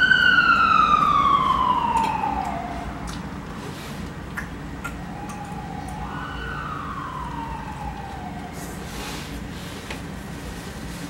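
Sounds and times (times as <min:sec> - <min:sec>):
emergency vehicle siren wailing: 0:00.0 - 0:03.6, 0:04.9 - 0:09.5.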